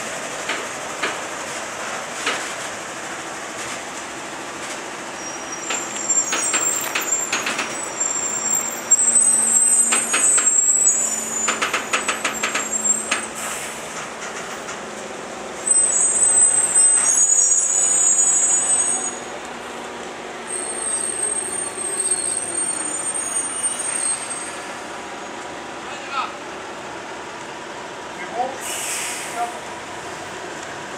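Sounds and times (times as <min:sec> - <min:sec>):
high-pitched squeals: 0:05.2 - 0:13.4, 0:15.6 - 0:19.4, 0:20.5 - 0:24.8.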